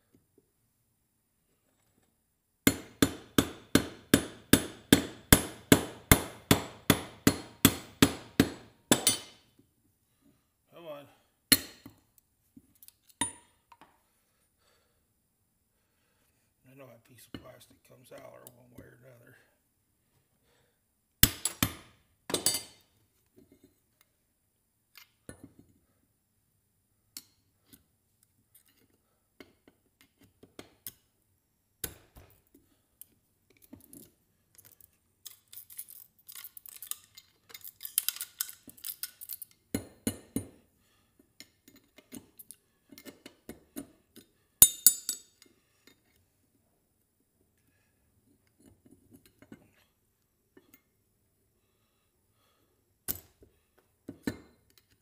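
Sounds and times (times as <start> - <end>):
small parts clicking and clinking: 33.0 - 39.9.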